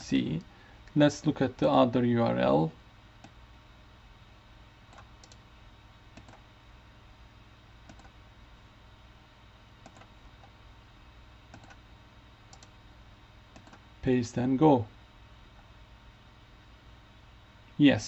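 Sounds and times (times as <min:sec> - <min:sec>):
low steady hum: 0:00.0 - 0:18.0
mouse and keyboard clicks: 0:06.2 - 0:06.4, 0:07.9 - 0:08.2, 0:09.8 - 0:10.5, 0:11.5 - 0:11.8, 0:13.6 - 0:13.8.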